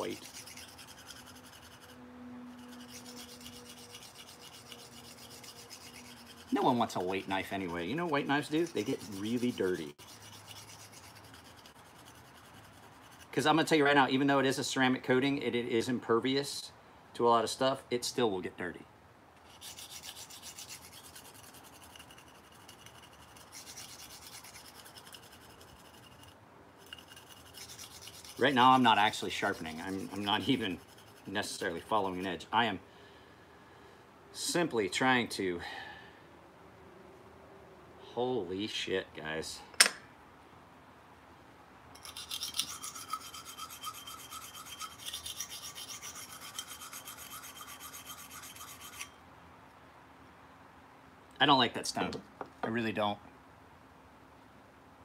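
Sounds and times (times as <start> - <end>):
knife scraping on sharpening stone: 0.0 - 13.3, 19.4 - 31.6, 42.0 - 49.2.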